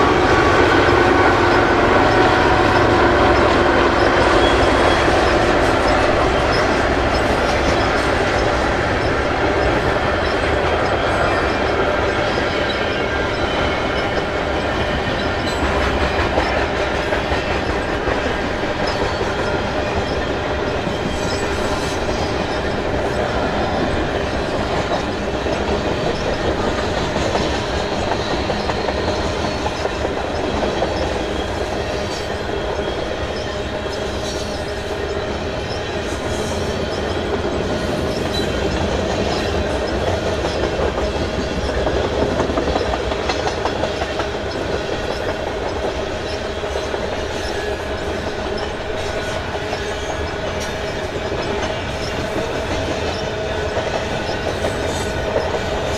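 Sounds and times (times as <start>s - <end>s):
train wheels rolling on rail: 0.0s - 55.9s.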